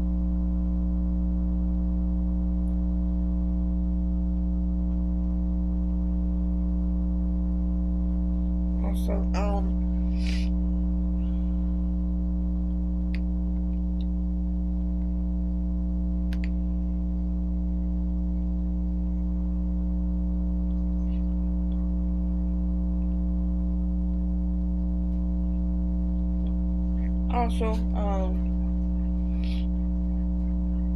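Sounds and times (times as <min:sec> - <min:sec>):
electrical mains hum: 0:00.0 - 0:30.9
faint clicks: 0:16.3 - 0:16.6.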